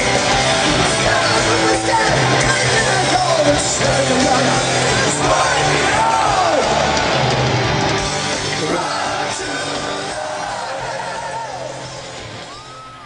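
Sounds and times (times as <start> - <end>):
person singing: 0.0 - 7.0
rock band playing loud: 0.0 - 12.8
audience yelling: 0.0 - 13.0.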